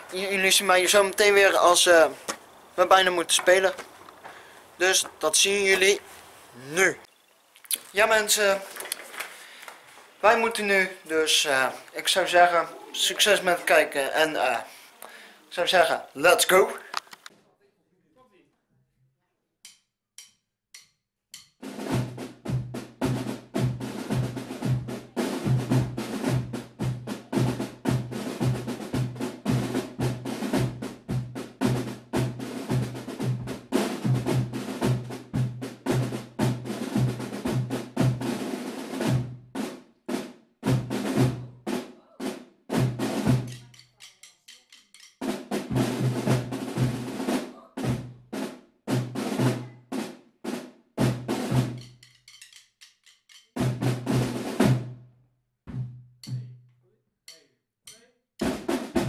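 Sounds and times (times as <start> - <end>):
snare drums playing with rolls: 0.0 - 3.8, 4.8 - 7.1, 21.4 - 55.0, 58.4 - 59.0
short clicks: 16.8 - 17.3.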